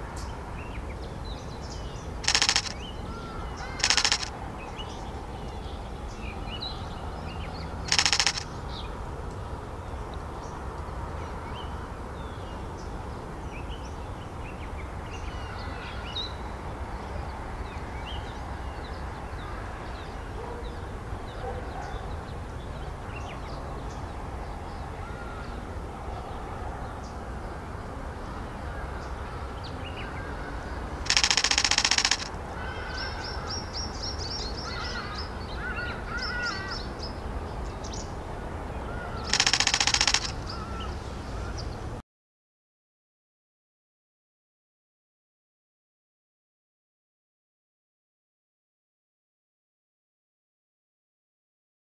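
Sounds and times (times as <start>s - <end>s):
small birds chirping: 0.2s - 10.6s, 29.0s - 38.2s, 38.8s - 41.9s
loud rapid rattling burst: 2.2s - 2.8s, 3.8s - 4.3s, 7.9s - 8.5s, 31.1s - 32.4s, 39.3s - 40.5s.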